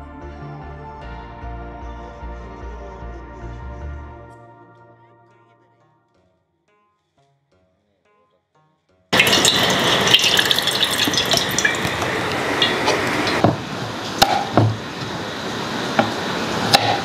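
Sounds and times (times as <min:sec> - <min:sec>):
water pouring into metal pot: 0:09.2 - 0:13.4.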